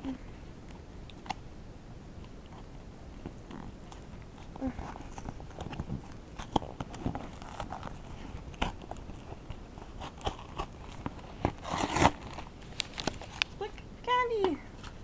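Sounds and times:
packaging crinkling and rustling: 3.2s - 13.6s.

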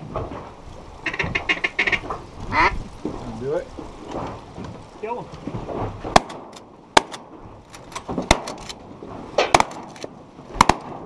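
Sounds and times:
shotguns firing: 6.0s - 11.0s.

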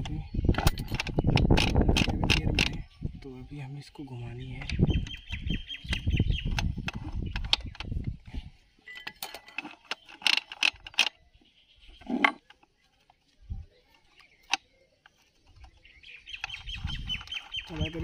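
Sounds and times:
metal gears clicking and clinking: 0.5s - 2.8s, 8.9s - 11.2s.

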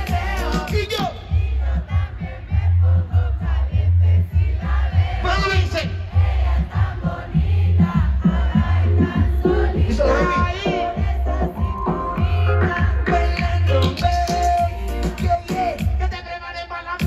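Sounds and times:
man rapping: 0.0s - 1.6s, 5.1s - 6.2s, 9.0s - 11.0s, 12.4s - 17.0s
heavy bass beat: 0.0s - 16.4s
crowd singing along and cheering: 0.0s - 17.0s.

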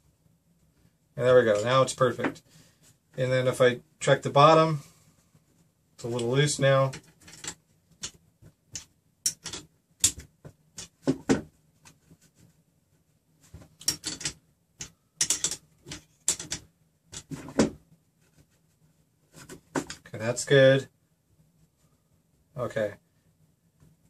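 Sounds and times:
metal parts clicking and knocking: 6.9s - 11.0s, 13.8s - 17.6s.

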